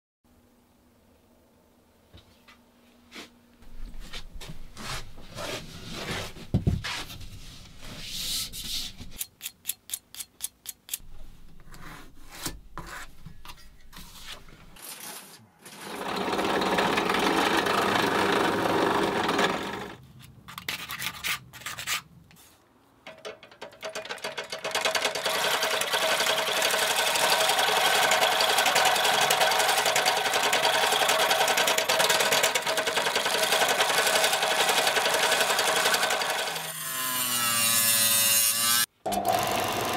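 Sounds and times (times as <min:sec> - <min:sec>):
treadle machine humming: 0:15.8 - 0:20.0, 0:23.9 - 0:36.6
drill press drilling into board: 0:24.8 - 0:36.6, 0:39.1 - 0:39.9.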